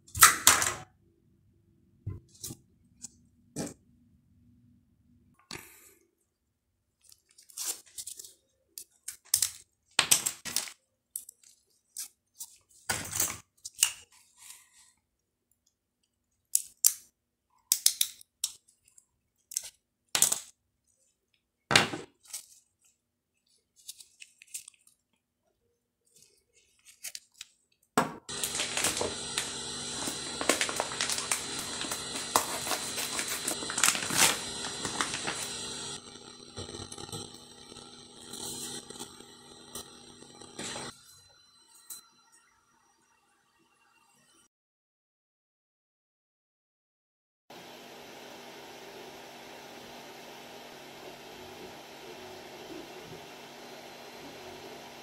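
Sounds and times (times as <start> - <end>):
plastic bag crinkling: 28.3 - 36.0.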